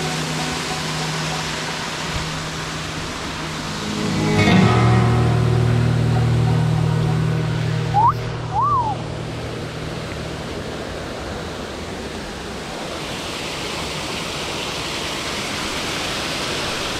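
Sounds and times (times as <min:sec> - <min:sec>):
waterfall rushing over rocks: 0:00.0 - 0:16.9
whistled chirps: 0:07.9 - 0:09.0.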